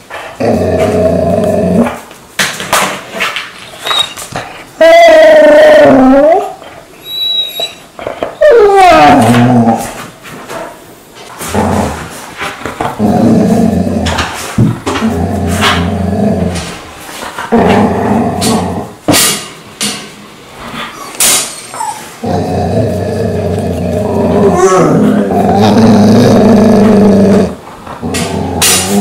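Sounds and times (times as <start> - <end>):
dog growling: 0.2 - 2.0, 3.8 - 10.0, 11.4 - 19.0, 21.8 - 29.0.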